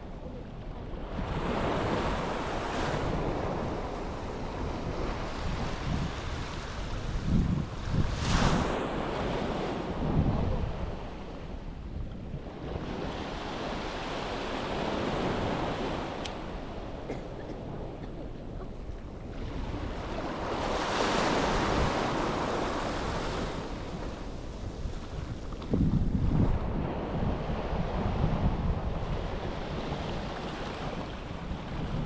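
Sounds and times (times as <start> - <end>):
wind buffeting microphone: 0.0 - 32.0
sea waves washing onto beach: 12.4 - 32.0.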